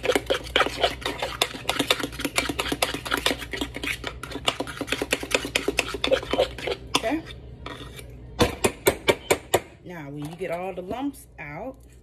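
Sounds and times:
fork beating batter in pan: 0.0 - 8.1.

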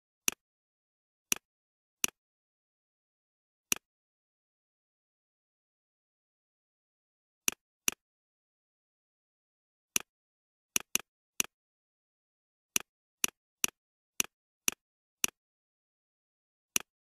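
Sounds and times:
computer mouse clicks: 10.8 - 11.6, 16.7 - 17.0.

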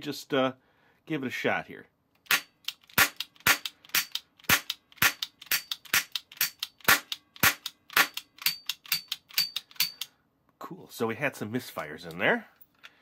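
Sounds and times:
toy cap pistol cracks: 2.2 - 10.1.

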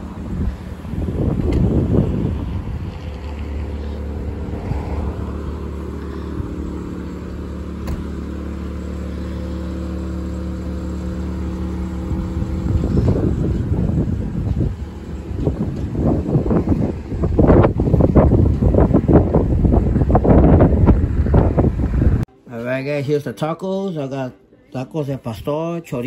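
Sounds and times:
wind buffeting microphone: 0.0 - 6.7, 11.9 - 22.3
engine idling: 0.0 - 22.2.

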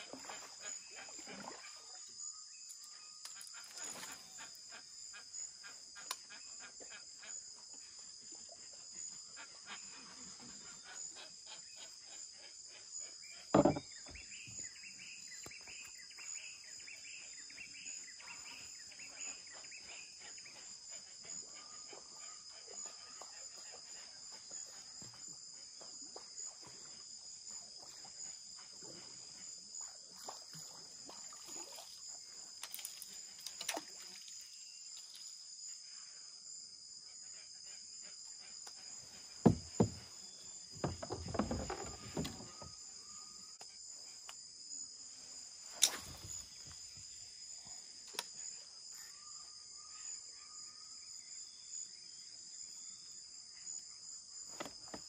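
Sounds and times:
insect chorus: 0.0 - 55.0
sharp knocks: 13.6 - 13.8, 39.5 - 40.0.

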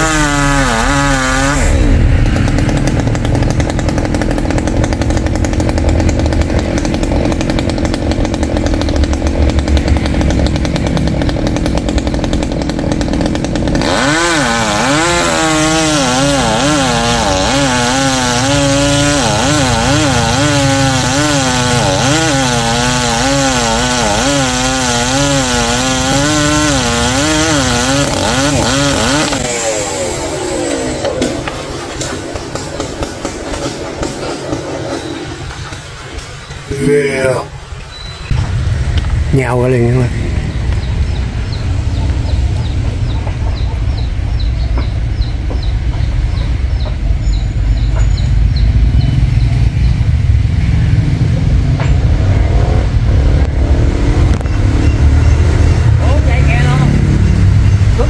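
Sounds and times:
chainsaw cutting wood: 0.0 - 34.7.

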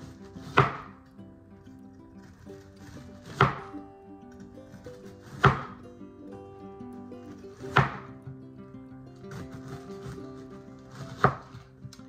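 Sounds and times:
knife chopping onion on board: 0.0 - 1.0, 2.3 - 3.8, 4.7 - 5.8, 7.5 - 8.1, 9.3 - 10.2, 10.8 - 11.7
background music: 0.0 - 12.0.

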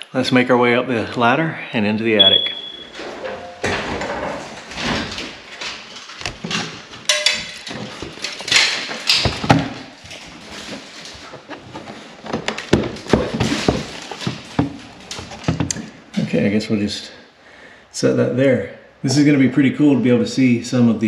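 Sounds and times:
steps on wooden ladder: 2.9 - 16.0
wood knocking and scraping: 2.9 - 16.0.

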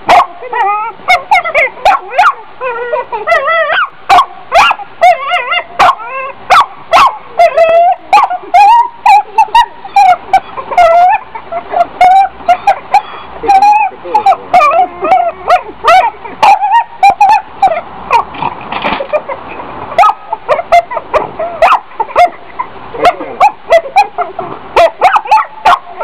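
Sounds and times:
dog barking: 0.0 - 13.2, 20.0 - 22.4, 23.0 - 26.0.

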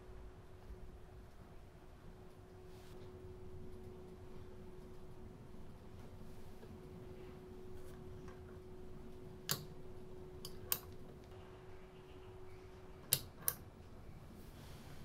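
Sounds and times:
steady low hum: 0.0 - 15.0
light switch clicking: 9.4 - 9.8, 13.1 - 13.6.

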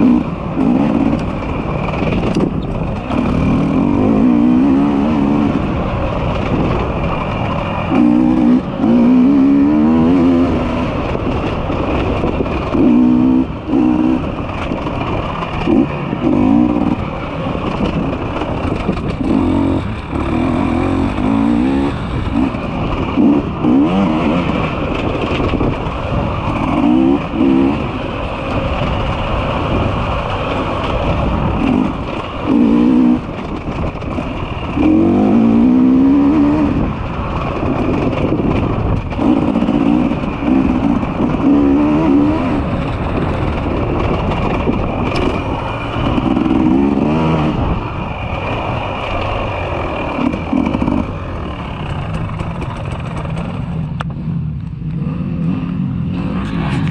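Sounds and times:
motorcycle engines revving: 0.0 - 56.9.

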